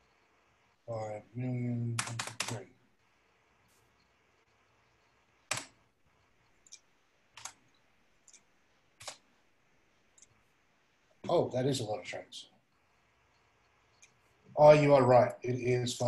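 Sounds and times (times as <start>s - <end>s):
keyboard and mouse clicks: 5.5s - 5.8s, 6.6s - 9.2s.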